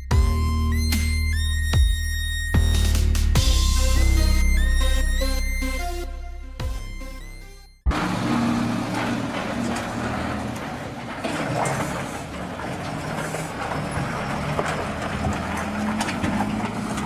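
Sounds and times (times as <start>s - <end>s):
background music: 0.0s - 7.9s
diesel truck engine running: 6.8s - 17.0s
dump truck rattles: 7.9s - 17.0s
road noise: 7.9s - 17.0s.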